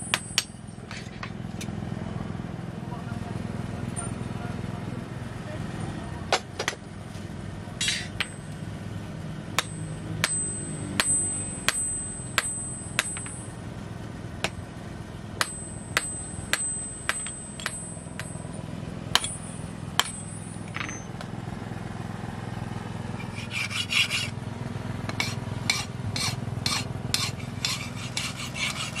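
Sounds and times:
hammer striking metal on anvil: 0.0 - 1.0, 7.8 - 8.5, 9.6 - 13.6, 15.4 - 21.3, 25.1 - 29.0
steady low hum: 0.0 - 29.0.

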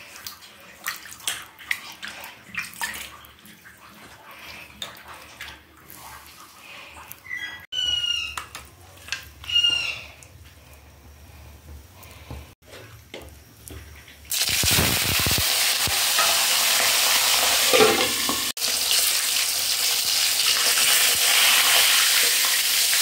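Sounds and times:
fish washed in water splashing: 0.0 - 7.3
high-pitched animal calls: 7.2 - 8.5, 9.4 - 10.2.

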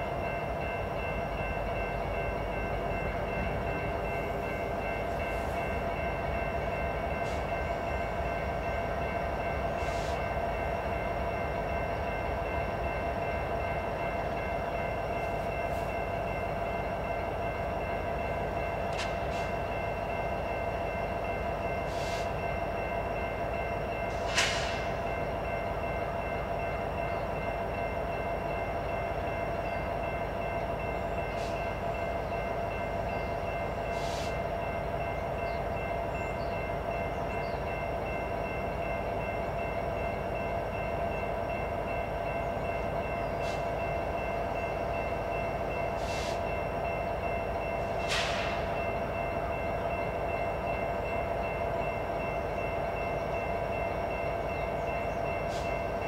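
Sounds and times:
diesel locomotive engine rumble: 0.0 - 56.0.

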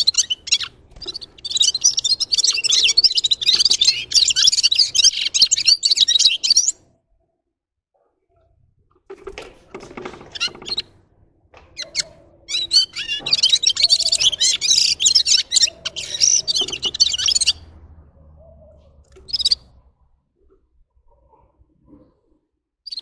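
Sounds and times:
bird chirping and twittering: 0.0 - 6.8, 10.0 - 10.9, 11.7 - 17.8, 18.4 - 19.8.

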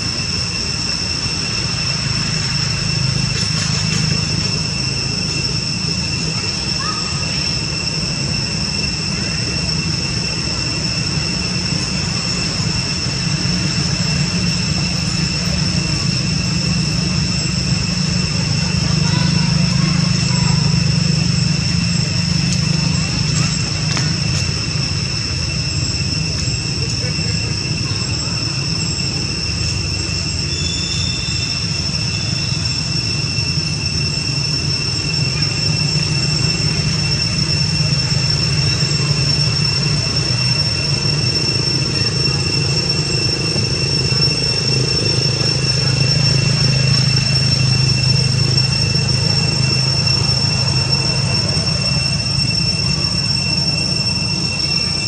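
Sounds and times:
cicadas droning: 0.0 - 55.0.

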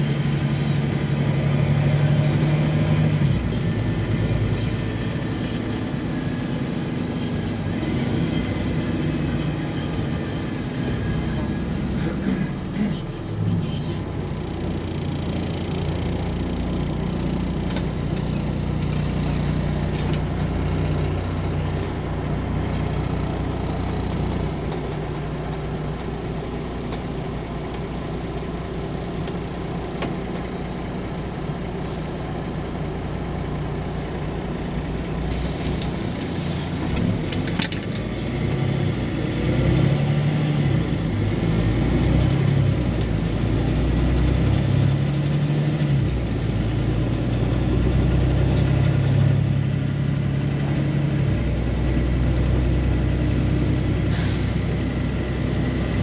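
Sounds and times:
bus diesel engine running: 0.0 - 56.0
compressed air hisses: 35.3 - 36.5, 54.1 - 54.8.

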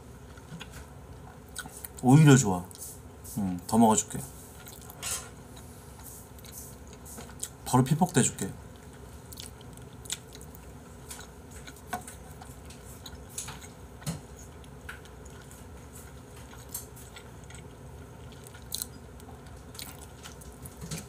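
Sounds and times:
person chewing: 0.2 - 2.0, 4.6 - 5.7, 6.4 - 7.6, 8.7 - 21.0.

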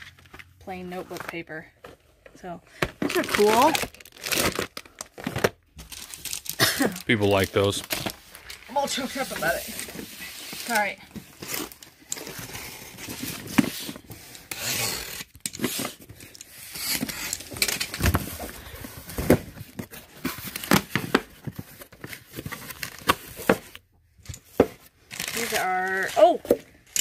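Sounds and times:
box cutter slicing packing tape: 12.3 - 16.0.

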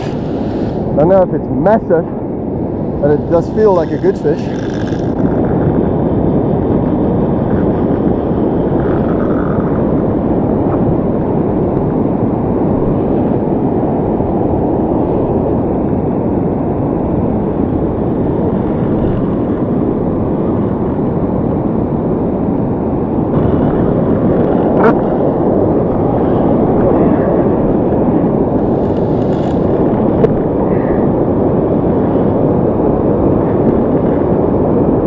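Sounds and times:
surf breaking: 0.0 - 1.1
wind on microphone: 0.0 - 35.0.

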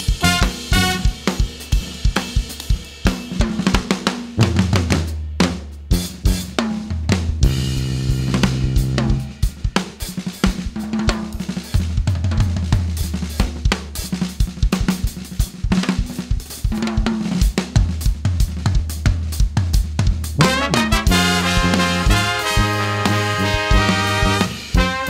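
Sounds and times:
sousaphone bass line: 0.0 - 1.2, 7.4 - 9.4
horn chord: 0.0 - 1.4, 20.4 - 25.0
drum kit playing a groove: 0.0 - 25.0.

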